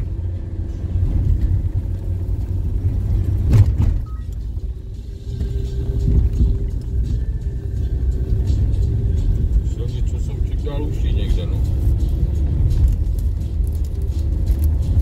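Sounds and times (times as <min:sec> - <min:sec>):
car engine and road rumble: 0:00.0 - 0:15.0
loud thump: 0:03.5 - 0:04.0.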